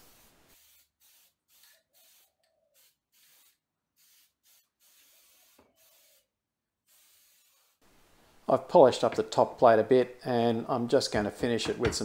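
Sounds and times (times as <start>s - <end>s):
aerosol spray hissing: 0.0s - 6.3s, 6.9s - 7.8s.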